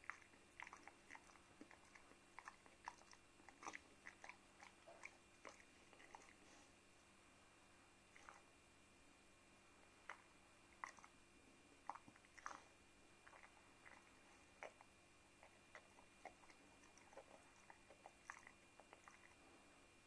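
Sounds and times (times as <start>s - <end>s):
dog chewing a treat: 0.0s - 6.5s, 11.9s - 14.8s, 15.4s - 19.4s.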